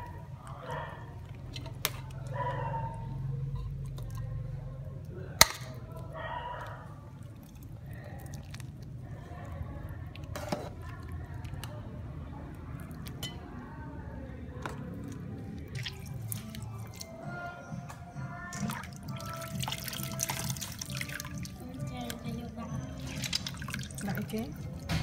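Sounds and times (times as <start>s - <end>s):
faint background music: 0.0s - 25.0s
broth sloshing: 3.0s - 13.4s, 14.6s - 25.0s.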